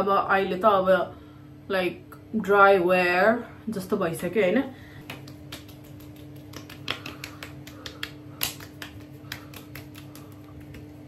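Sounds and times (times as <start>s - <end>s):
hands patting skin: 5.0s - 11.0s.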